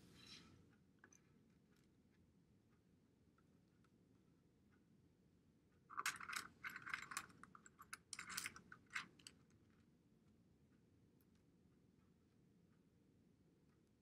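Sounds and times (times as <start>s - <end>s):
plastic tiles clicking and clattering: 5.9s - 9.4s.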